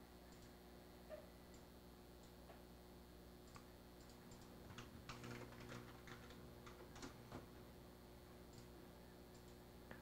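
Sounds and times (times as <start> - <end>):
computer keyboard typing: 3.5 - 7.3.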